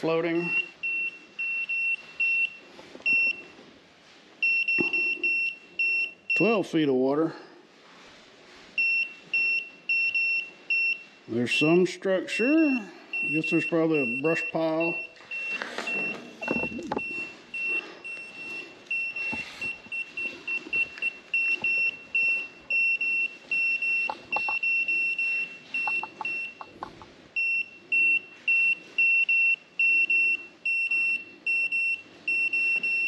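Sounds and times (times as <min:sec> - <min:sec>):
high electronic beeping: 0:12.4 - 0:33.0.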